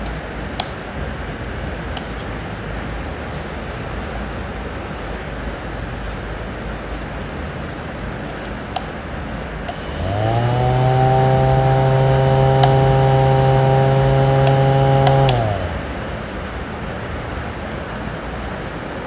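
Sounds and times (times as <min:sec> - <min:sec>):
steady hiss: 0:00.0 - 0:19.0
small fan motor humming: 0:01.6 - 0:18.8
faint clicks: 0:01.7 - 0:02.3, 0:08.2 - 0:09.0, 0:09.6 - 0:15.7.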